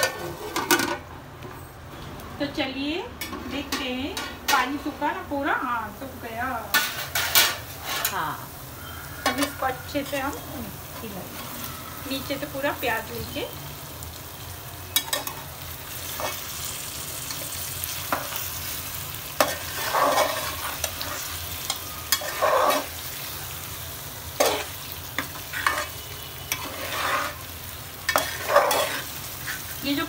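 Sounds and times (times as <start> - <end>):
meat sizzling in oil: 8.2 - 30.0
spatula scraping pot: 22.1 - 23.0, 24.4 - 27.5, 28.1 - 29.8.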